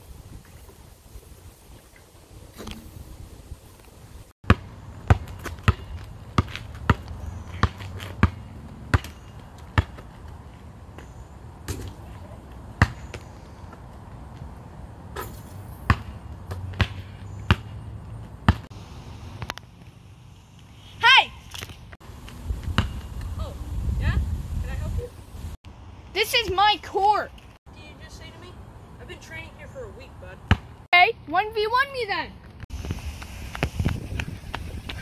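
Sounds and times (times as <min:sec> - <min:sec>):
basketball bouncing on asphalt: 0:04.4 - 0:18.7, 0:22.6 - 0:23.3, 0:30.4 - 0:30.9.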